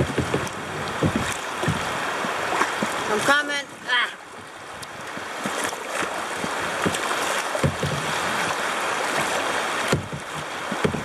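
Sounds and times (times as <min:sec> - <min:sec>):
short low bumps: 0:00.0 - 0:03.1
river water rushing over rocks: 0:00.0 - 0:11.0.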